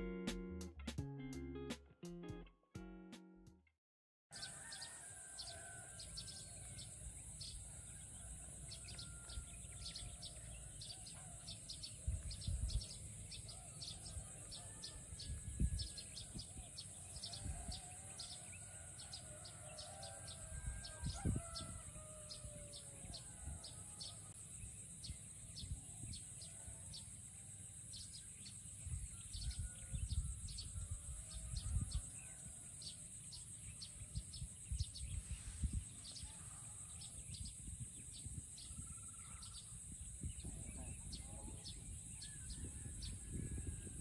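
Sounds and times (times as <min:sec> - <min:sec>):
wind rumbling on microphone: 0:09.1 - 0:18.6, 0:19.8 - 0:23.9, 0:28.8 - 0:32.6, 0:33.2 - 0:44.0.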